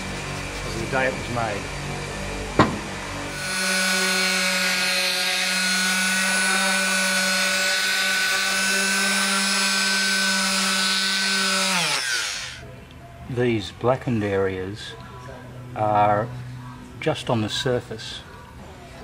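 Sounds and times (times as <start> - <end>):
electric sander on wood: 3.3 - 12.6.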